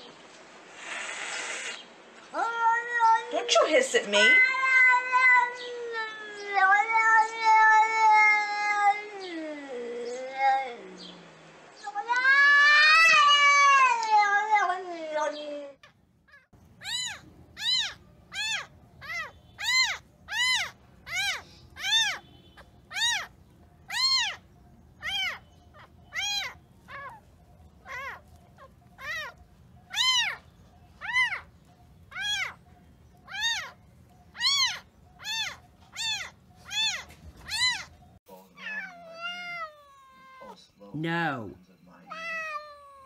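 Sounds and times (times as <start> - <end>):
kitten mewing: 16.3 - 30.4, 31.0 - 31.5, 32.1 - 32.6, 33.2 - 37.9, 38.6 - 40.6, 42.1 - 43.0.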